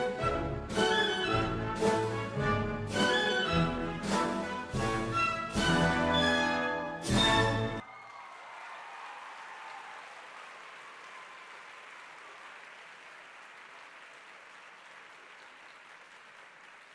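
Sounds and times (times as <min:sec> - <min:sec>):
audience applauding: 0:07.8 - 0:16.9.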